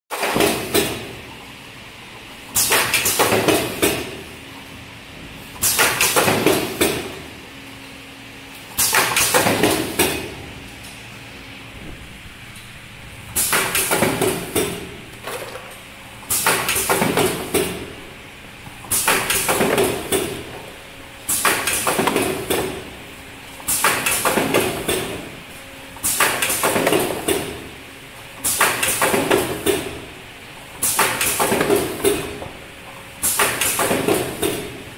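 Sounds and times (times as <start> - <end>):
faint machine hum: 0.1 - 34.9
packing machine clatter: 13.4 - 18.0, 18.8 - 20.6, 21.3 - 22.9, 30.6 - 34.9.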